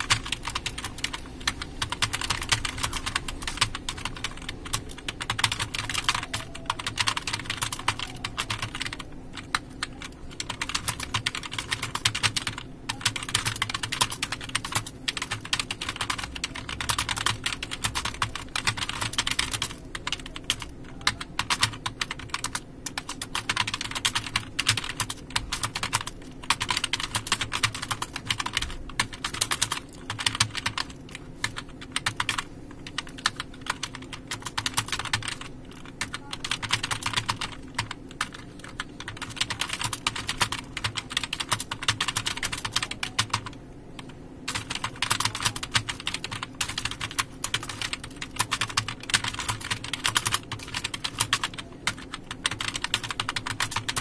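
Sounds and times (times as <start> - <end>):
faint steady hum: 0.0 - 54.0
fast keyboard typing: 0.0 - 54.0.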